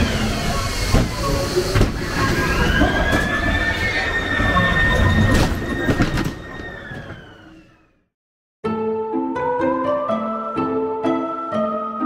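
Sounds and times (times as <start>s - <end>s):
wheels squealing on track: 0.0s - 7.9s.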